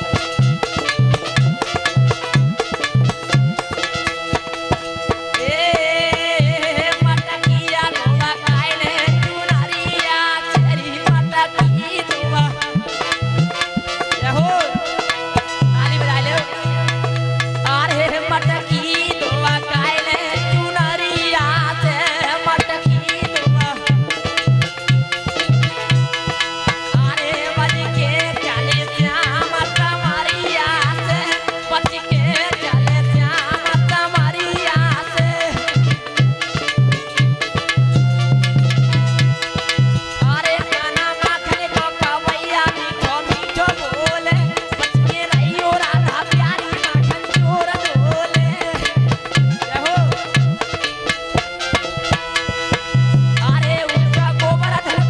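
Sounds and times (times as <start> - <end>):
hand drum rhythm: 0.0 - 55.0
harmonium tones: 0.0 - 55.0
person singing: 5.4 - 13.0, 14.2 - 17.0, 17.6 - 24.0, 26.9 - 35.8, 40.2 - 50.4, 53.4 - 55.0.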